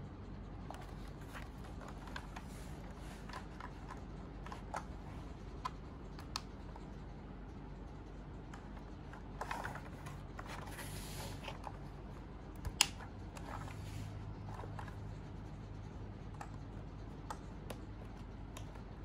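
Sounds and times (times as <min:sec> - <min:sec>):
hands rubbing plastic case: 0:00.7 - 0:06.6, 0:08.6 - 0:12.2.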